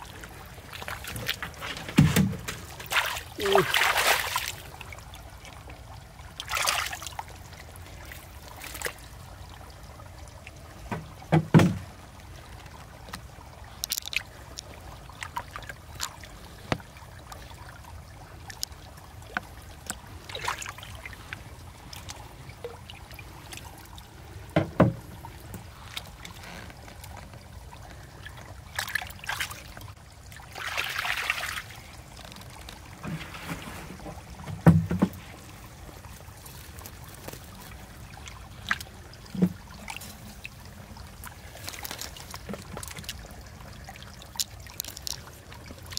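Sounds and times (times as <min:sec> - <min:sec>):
hands splashing in muddy water: 0:02.8 - 0:04.7.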